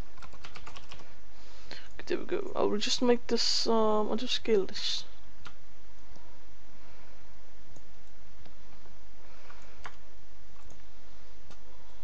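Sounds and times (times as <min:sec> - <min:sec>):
low hum: 0:05.0 - 0:12.0
computer mouse clicking: 0:09.5 - 0:10.9.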